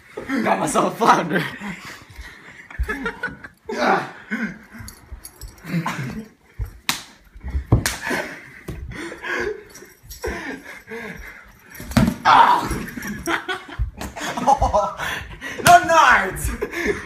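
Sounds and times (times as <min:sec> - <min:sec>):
people grunting and panting: 0:00.0 - 0:17.0
breathless laughter: 0:01.3 - 0:06.6, 0:08.0 - 0:11.6, 0:12.6 - 0:15.7, 0:16.4 - 0:17.0
sharp smacks: 0:07.8 - 0:08.1.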